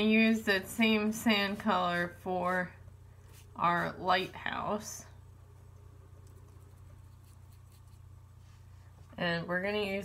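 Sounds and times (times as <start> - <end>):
steady low hum: 0.0 - 10.0
brush strokes on paper: 0.4 - 4.7, 6.4 - 9.2.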